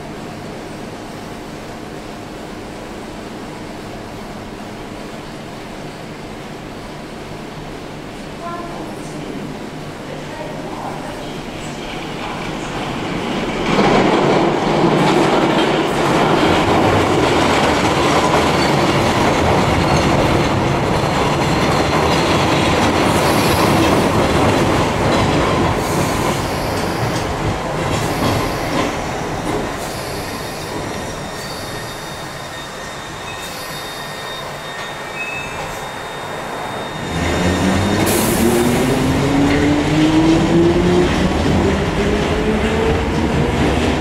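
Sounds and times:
train wheels rumbling on rails: 0:08.4 - 0:44.0
thin high squeal: 0:29.8 - 0:37.9.

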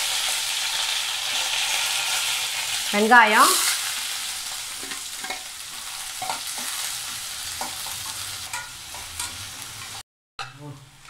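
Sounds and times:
onions sizzling in hot oil: 0:00.0 - 0:10.0
metal spatula scraping pan: 0:03.6 - 0:10.0.

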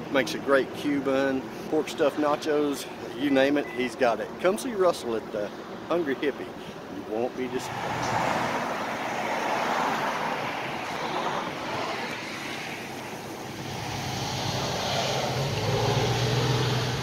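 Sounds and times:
passing road traffic: 0:00.0 - 0:17.0
vehicle engine hum: 0:06.4 - 0:17.0.

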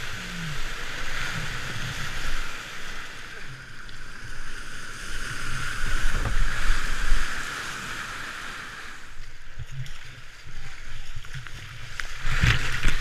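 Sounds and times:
paddle strokes: 0:00.0 - 0:13.0
rushing whitewater: 0:00.0 - 0:13.0
water sloshing against a hull: 0:00.0 - 0:13.0.

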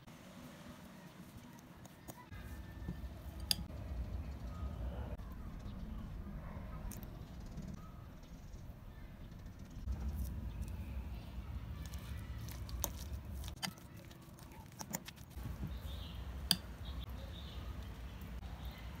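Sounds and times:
fork mashing soft food: 0:09.9 - 0:17.1.

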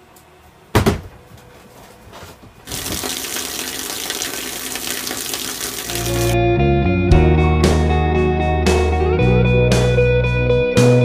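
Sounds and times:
shower water running: 0:02.7 - 0:06.4.

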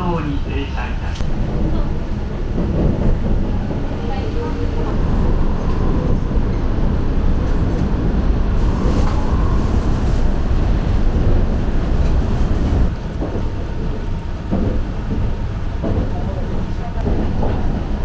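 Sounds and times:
train rumbling on track: 0:00.0 - 0:18.0.

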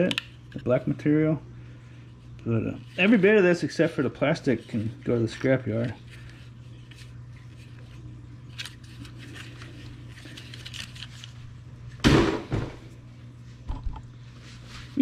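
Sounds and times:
steady low hum: 0:00.0 - 0:15.0
loud knock: 0:12.0 - 0:12.8.

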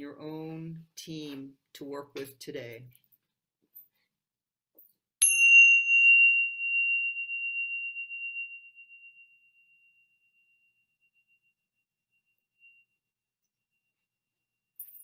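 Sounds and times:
small bell ringing: 0:05.2 - 0:15.0.

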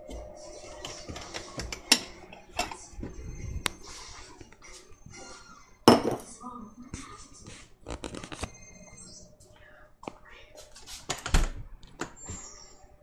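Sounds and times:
dishes clinking and knocking: 0:00.0 - 0:03.2, 0:04.7 - 0:06.4.

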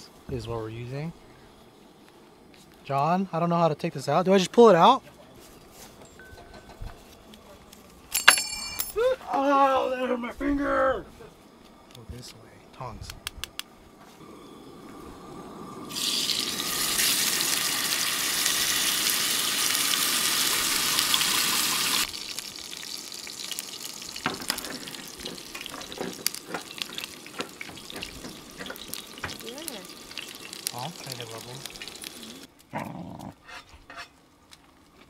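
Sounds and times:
fat crackling and popping: 0:13.0 - 0:33.3
steak sizzling: 0:14.7 - 0:32.5.

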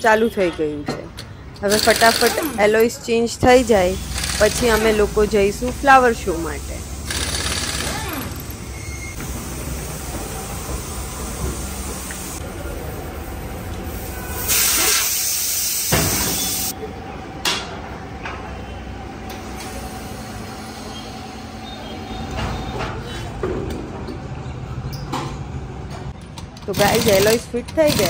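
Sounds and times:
workshop noise: 0:00.0 - 0:28.0
compressed air hissing: 0:13.8 - 0:16.7.

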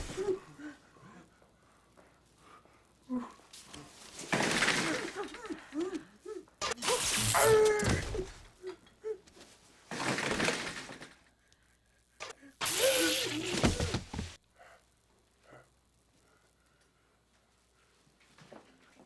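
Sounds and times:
electric shock buzzes: 0:06.6 - 0:07.8, 0:12.6 - 0:14.1.

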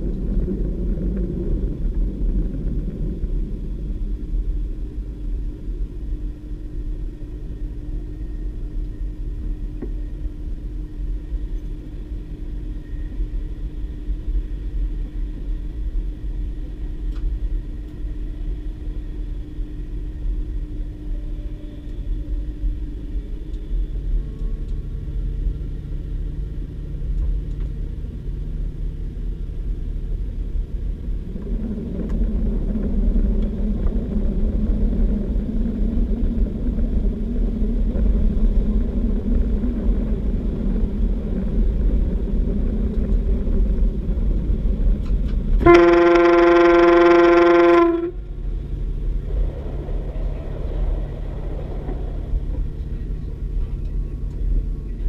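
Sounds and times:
diesel train engine rumble: 0:00.0 - 0:55.0
train horn: 0:21.1 - 0:22.6, 0:45.6 - 0:48.4.

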